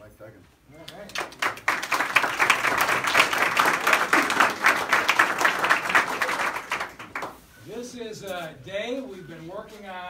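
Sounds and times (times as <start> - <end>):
crowd applauding: 0.9 - 7.4.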